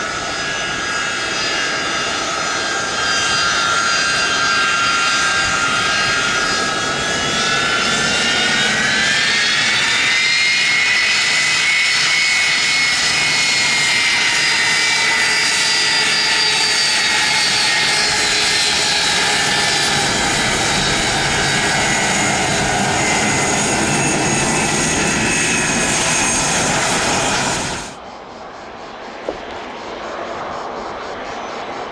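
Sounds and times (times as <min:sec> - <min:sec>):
deep aircraft rumble: 0:00.0 - 0:31.7
jet engine whine: 0:00.0 - 0:31.9.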